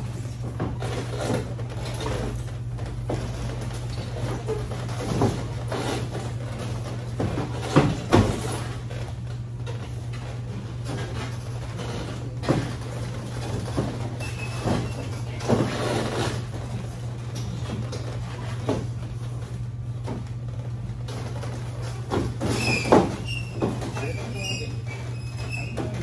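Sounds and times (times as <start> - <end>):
steady low hum: 0.0 - 26.0.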